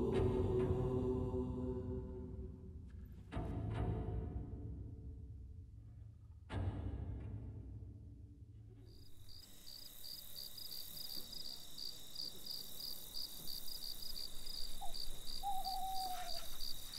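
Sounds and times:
crickets chirping: 0:08.9 - 0:16.9
faint whistled call: 0:14.0 - 0:16.9.

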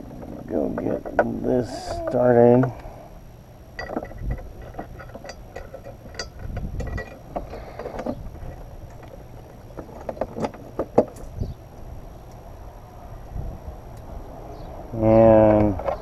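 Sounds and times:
metal bracket clicks and knocks: 0:03.8 - 0:09.1.

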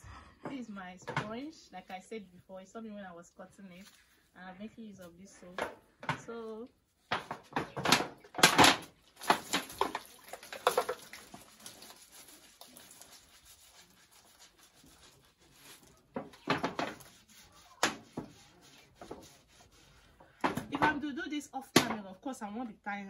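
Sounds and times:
sponge rubbing and squishing: 0:09.3 - 0:20.4.

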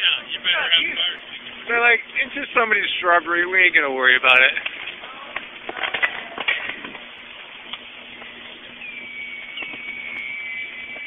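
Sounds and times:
low electrical hum: 0:00.0 - 0:11.0
tree crackling and popping: 0:01.1 - 0:11.0
thin high whistle: 0:08.8 - 0:11.0.

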